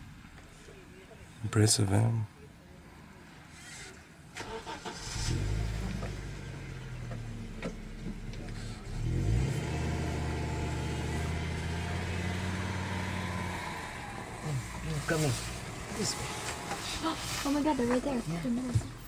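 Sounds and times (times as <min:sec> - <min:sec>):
vehicle engine running: 0:05.2 - 0:19.0.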